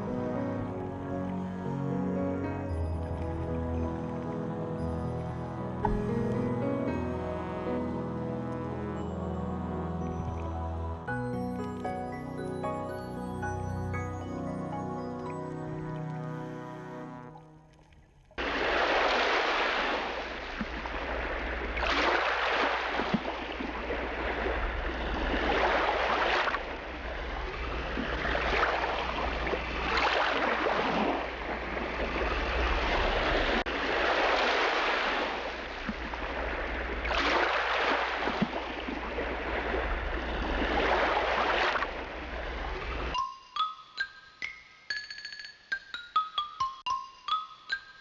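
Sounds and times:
sea water sloshing and splashing: 17.2 - 43.2.

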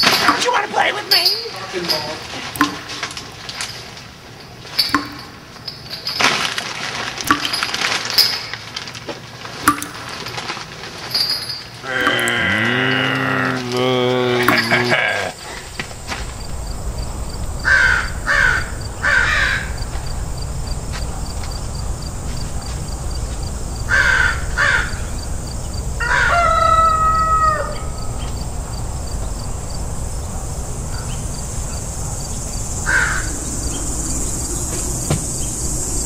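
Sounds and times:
steady low hum: 11.8 - 36.0
crow cawing: 17.6 - 19.8, 23.9 - 25.2, 26.0 - 28.3, 32.6 - 35.2.

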